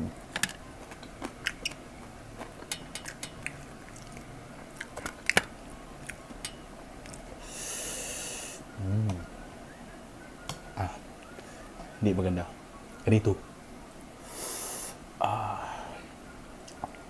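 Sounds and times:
chewing with crunches: 0.2s - 7.4s
soft hiss: 13.8s - 17.0s.

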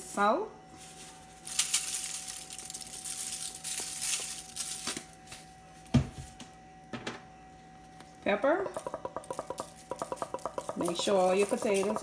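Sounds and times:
salt grains hissing onto foil: 1.0s - 5.0s
salt shaker shaking: 1.4s - 4.9s, 8.8s - 12.0s.

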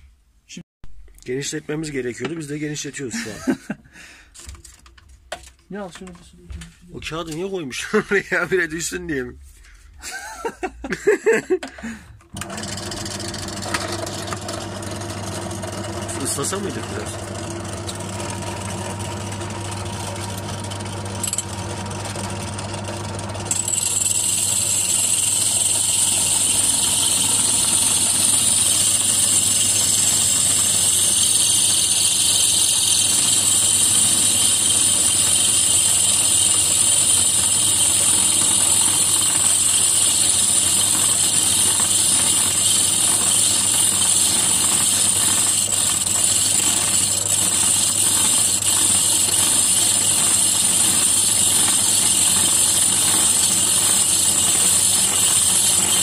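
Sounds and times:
drill press humming: 11.6s - 56.0s
drill bit grinding glass: 12.4s - 56.0s.

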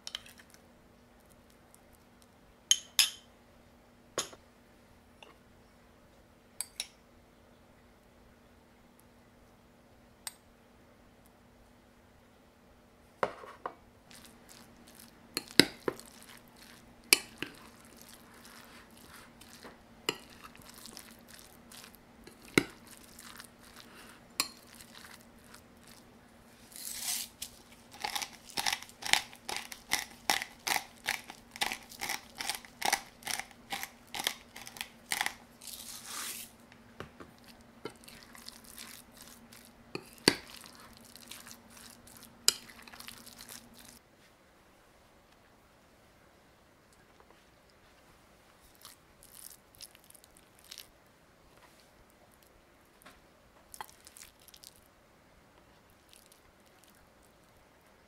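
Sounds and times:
wet squelching of mixing meat: 14.1s - 26.8s, 37.3s - 44.0s, 48.7s - 50.9s, 53.7s - 54.8s.

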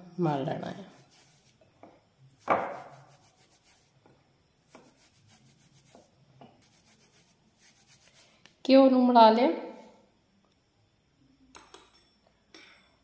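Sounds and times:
hands rubbing flour in a bowl: 0.7s - 1.6s, 2.3s - 4.0s, 4.6s - 8.4s.

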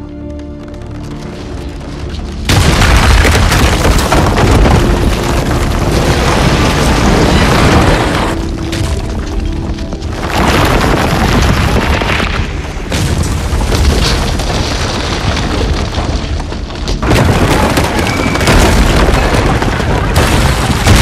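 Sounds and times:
film music with held tones: 0.0s - 21.0s
rumble of breaking stone and debris: 0.6s - 21.0s
loud explosion blast: 2.5s - 8.5s, 17.0s - 21.0s.

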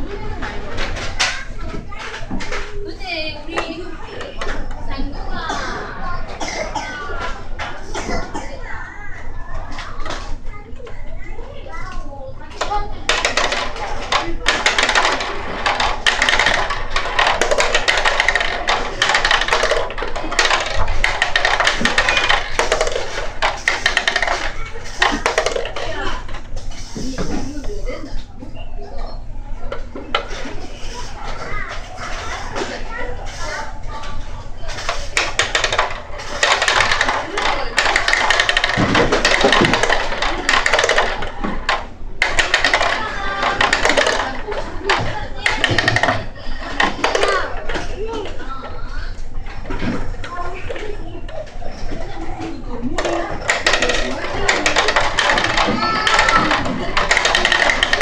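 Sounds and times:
plastic balls clattering down tube: 12.6s - 27.7s, 34.6s - 48.6s, 49.7s - 58.0s.

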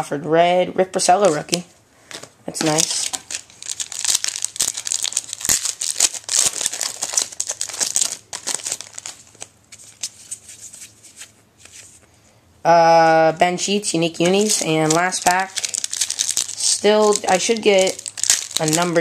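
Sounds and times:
foil wrapper tearing and crinkling: 2.6s - 10.4s, 14.1s - 19.0s.

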